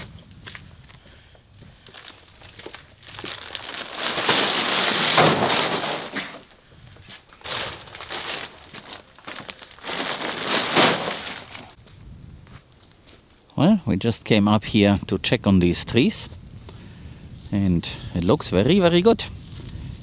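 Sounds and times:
plastic sack rustling: 1.9 - 6.6, 7.2 - 11.8.

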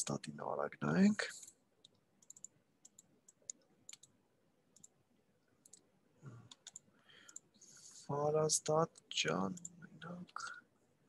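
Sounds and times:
computer mouse clicks: 1.4 - 4.2, 5.6 - 5.9, 6.5 - 7.5.

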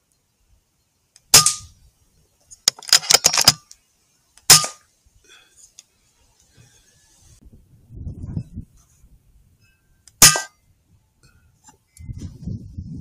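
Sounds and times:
metallic clicks of rifle action: 2.6 - 3.8.

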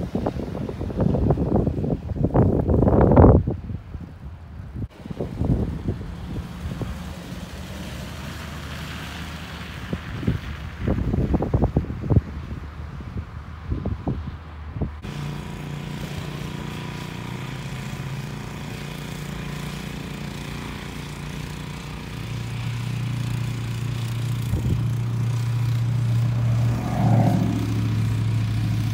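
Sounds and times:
wind on microphone: 0.0 - 7.2, 9.8 - 15.1, 23.4 - 28.9
snowblower engine running: 4.9 - 11.2, 15.0 - 28.9.

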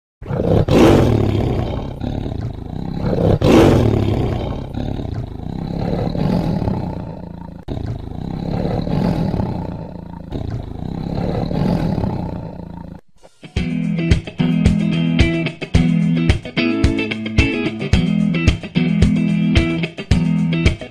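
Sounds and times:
tiger roaring: 0.2 - 13.0.

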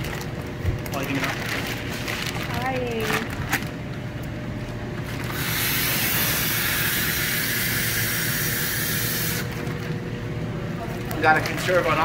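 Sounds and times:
oxygen hissing from hose: 5.3 - 9.5.

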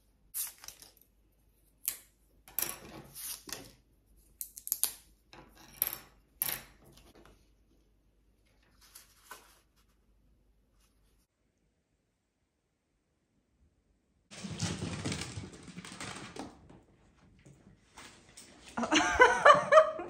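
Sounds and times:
wooden sticks clattering on table: 2.5 - 3.8
stiff paper rustling: 8.7 - 10.1.

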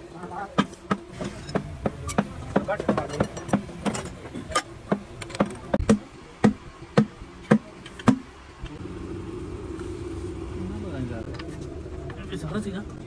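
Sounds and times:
steady hum: 0.0 - 13.0
hammer strikes: 0.5 - 8.3.

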